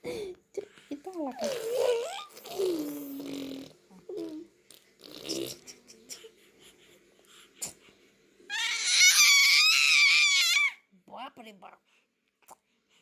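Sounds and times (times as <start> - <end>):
baby giggling and cooing: 1.4 - 4.5
baby squealing: 8.5 - 10.8.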